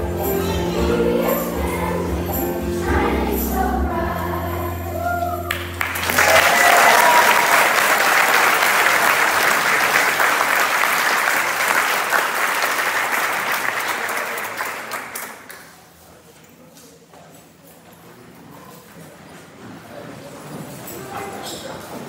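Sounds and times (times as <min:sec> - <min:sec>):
audience applause: 0:05.5 - 0:15.6.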